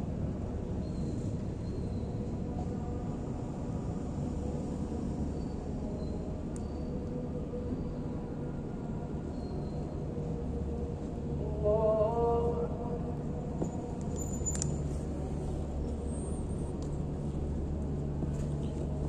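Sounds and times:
man chanting over loudspeaker: 11.4 - 13.2.

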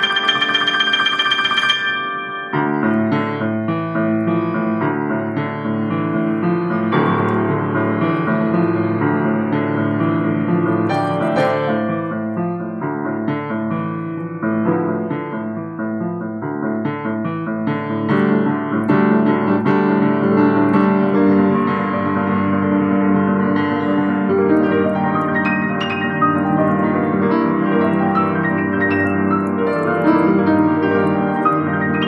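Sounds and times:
grand piano: 0.0 - 32.0.

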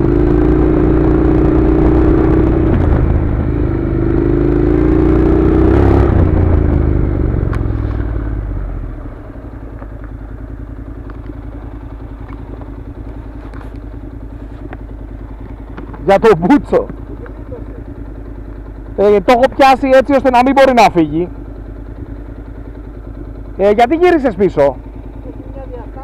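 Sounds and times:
motorcycle engine idling: 0.0 - 26.0
motorcycle engine running: 0.0 - 26.0
tyres on gravel: 9.7 - 17.8.

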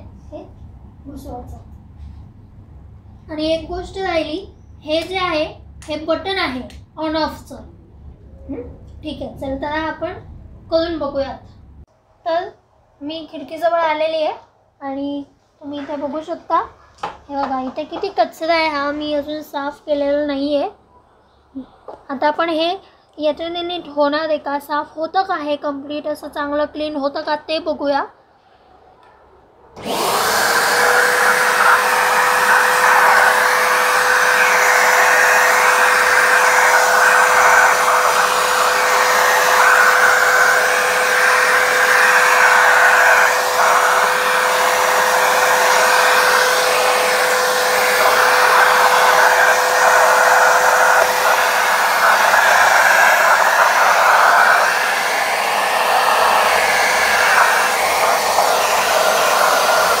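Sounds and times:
vacuum cleaner suction: 29.8 - 60.0.

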